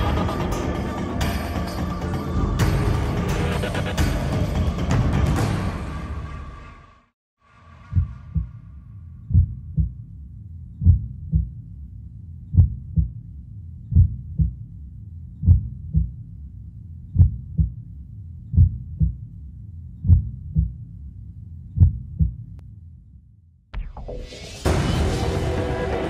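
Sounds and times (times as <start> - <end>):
deep heartbeat-like thumps: 7.9 - 11.8, 12.5 - 16.4, 17.1 - 19.4, 20.0 - 21.0, 21.7 - 22.6.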